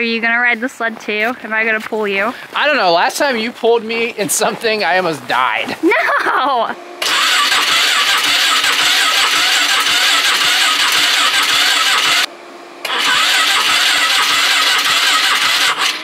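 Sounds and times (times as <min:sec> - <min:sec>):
electric starter cranking engine: 0:06.8 - 0:16.0.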